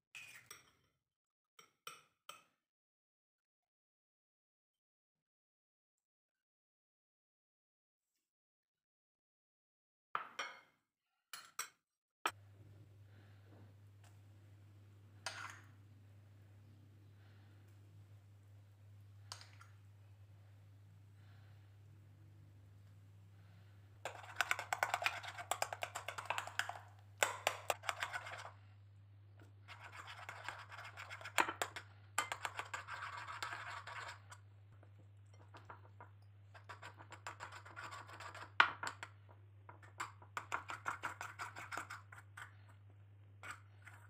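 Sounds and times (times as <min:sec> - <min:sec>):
metal spoon scraping a bowl: 0:00.2 - 0:00.7, 0:15.2 - 0:15.7, 0:23.6 - 0:28.6, 0:29.5 - 0:34.5, 0:36.5 - 0:39.1, 0:39.8 - 0:42.8, 0:43.4 - 0:44.0
low steady hum: 0:12.4 - 0:38.4.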